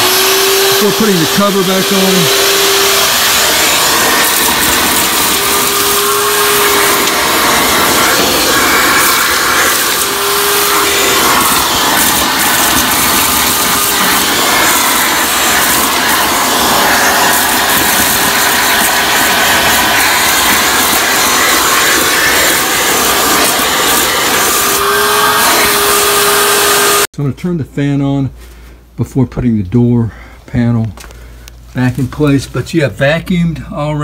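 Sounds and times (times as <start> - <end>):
vacuum cleaner running: 0.0 - 27.1
vacuum hose sucking dirt: 0.0 - 27.1.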